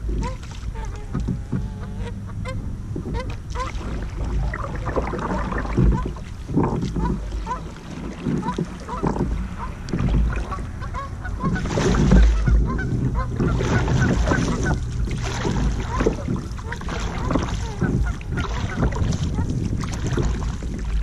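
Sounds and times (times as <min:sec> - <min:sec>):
paddle splashing in water: 0:00.0 - 0:21.0
geese honking: 0:00.2 - 0:03.8, 0:07.0 - 0:19.5.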